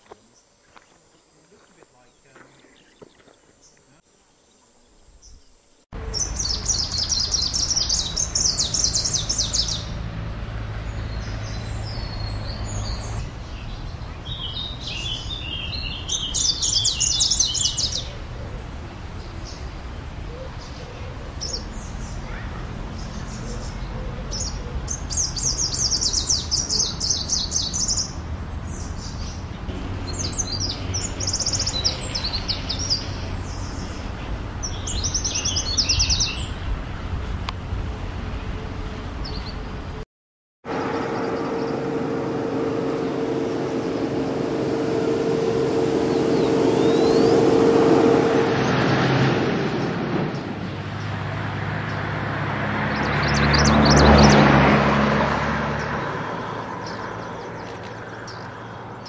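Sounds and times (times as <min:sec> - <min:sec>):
bird trilling song: 0:04.5 - 0:10.0, 0:10.9 - 0:18.2, 0:20.3 - 0:36.7, 0:46.1 - 0:47.5
motor hum: 0:40.7 - 0:49.2.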